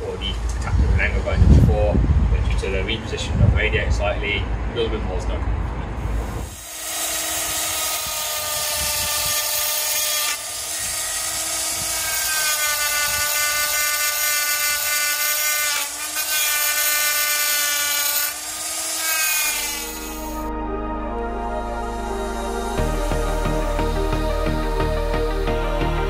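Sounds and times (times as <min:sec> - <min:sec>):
die grinder whining on metal: 0:06.4 - 0:20.4.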